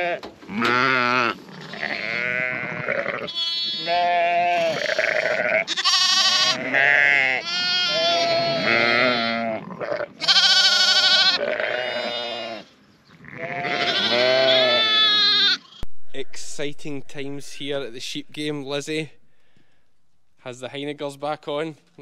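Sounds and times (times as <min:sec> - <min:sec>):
ewes and lambs bleating: 0:00.0 - 0:15.8.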